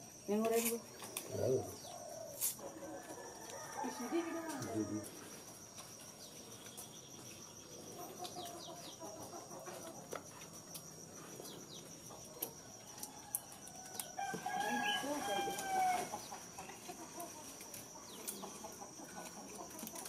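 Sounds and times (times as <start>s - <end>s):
insect trilling: 0.0s - 20.0s
chickens clucking: 7.2s - 10.8s, 15.3s - 20.0s.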